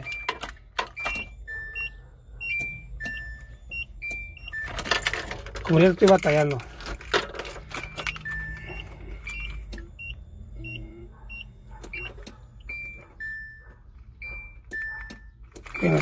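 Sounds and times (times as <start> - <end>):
short beeps: 0.0 - 4.8, 7.7 - 16.0
keys jangling in ignition: 4.0 - 10.0, 11.1 - 16.0.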